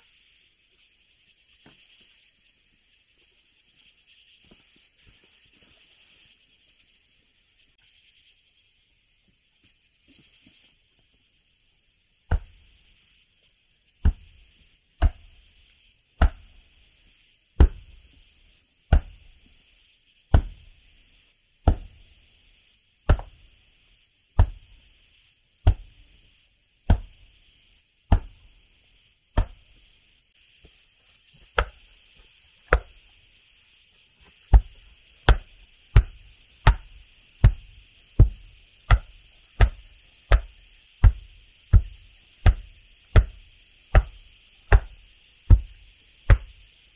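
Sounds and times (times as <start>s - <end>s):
steady high hiss: 0.0s - 46.9s
blade chopping with thuds: 12.3s - 12.6s, 14.0s - 14.4s, 15.0s - 15.4s, 16.2s - 16.6s, 17.6s - 18.1s, 18.9s - 19.4s, 20.3s - 20.7s, 21.6s - 22.1s, 23.1s - 23.5s, 24.4s - 24.8s, 25.6s - 26.0s, 26.9s - 27.2s, 28.1s - 28.5s, 29.4s - 29.8s, 34.5s - 46.6s.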